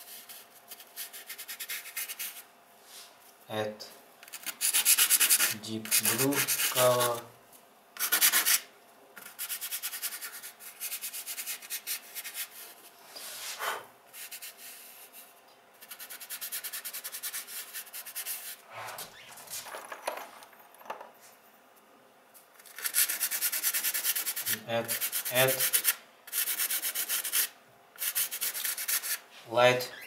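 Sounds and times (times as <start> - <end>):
fingertips rubbing on sandpaper: 0.0 - 2.4, 4.3 - 7.2, 9.2 - 12.8, 13.4 - 15.2, 15.8 - 19.0, 22.7 - 29.2.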